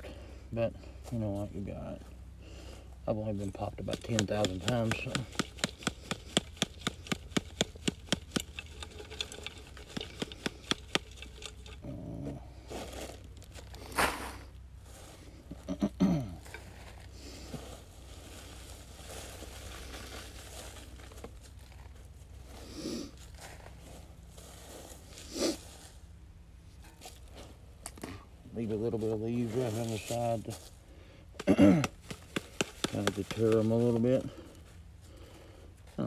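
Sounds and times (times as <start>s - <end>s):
dirt rattling through sifter screen: 3.2s - 15.3s, 16.4s - 22.6s, 28.6s - 30.7s, 32.0s - 34.6s
dry leaves rustling: 6.7s - 11.8s, 12.5s - 15.4s, 16.4s - 27.8s, 28.6s - 30.9s, 32.0s - 34.8s
leaves crunching: 16.4s - 26.2s, 28.6s - 30.8s.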